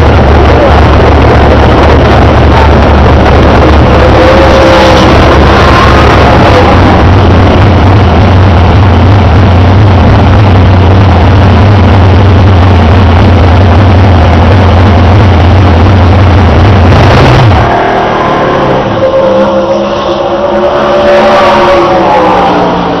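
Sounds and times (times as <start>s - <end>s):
race car engine running: 0.0s - 23.0s.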